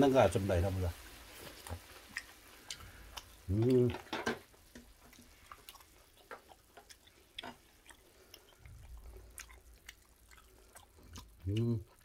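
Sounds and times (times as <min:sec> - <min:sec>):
man chewing with wet clicks: 0:01.6 - 0:03.9, 0:04.7 - 0:12.0.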